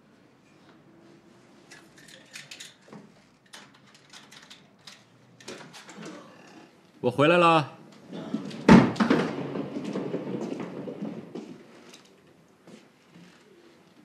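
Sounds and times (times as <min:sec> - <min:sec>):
light clicks and rustles: 0:01.6 - 0:06.2.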